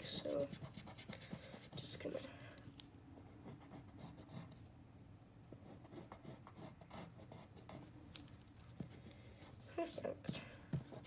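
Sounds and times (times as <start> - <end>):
pencil scratching on paper: 0.0 - 2.3, 3.4 - 4.6, 5.6 - 7.9.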